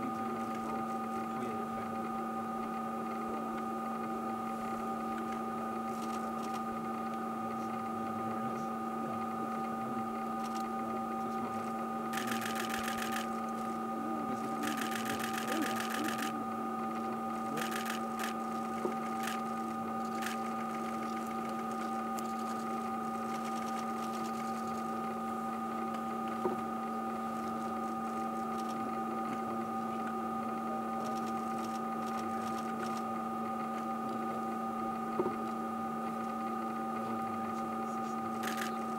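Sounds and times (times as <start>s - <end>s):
steady mechanical hum: 0.0s - 38.9s
short buzzing whirs: 10.2s - 25.2s.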